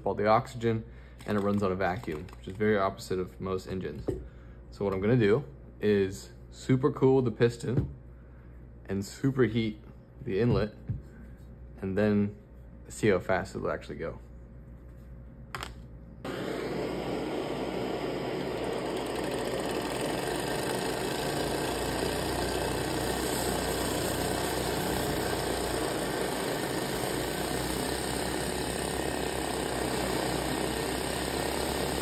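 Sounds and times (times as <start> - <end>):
blowtorch flame hissing: 16.3 - 32.0
small engine whirring: 16.3 - 32.0.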